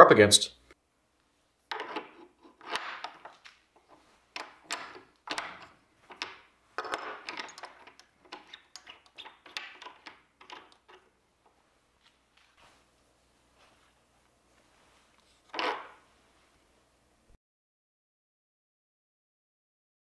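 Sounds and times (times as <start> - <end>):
metal clinking and scraping: 1.7 - 11.1.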